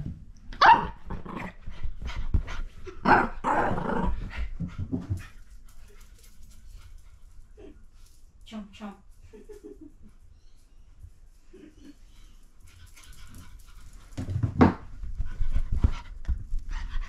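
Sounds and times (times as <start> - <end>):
small dog growling and barking: 0.6 - 1.6, 3.0 - 4.5.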